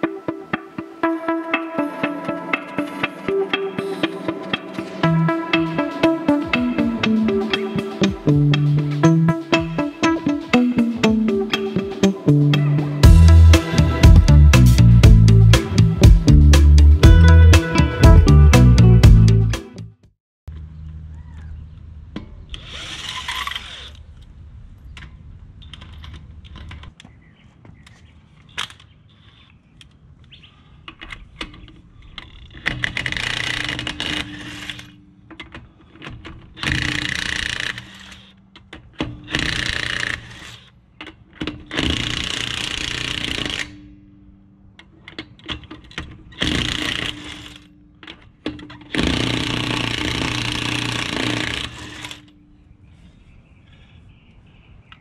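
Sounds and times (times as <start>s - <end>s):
impact wrench hammering: 46.4s - 52.3s.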